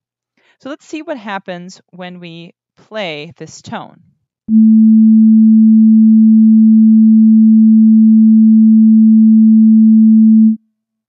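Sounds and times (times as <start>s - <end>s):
low sine tone: 4.5s - 10.6s.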